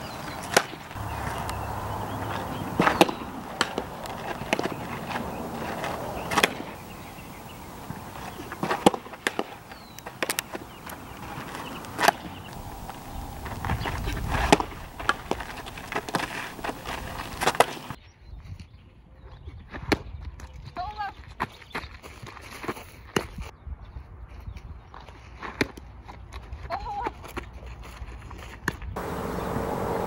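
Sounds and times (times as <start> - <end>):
steady background hiss: 0.0 - 18.0, 29.0 - 30.0.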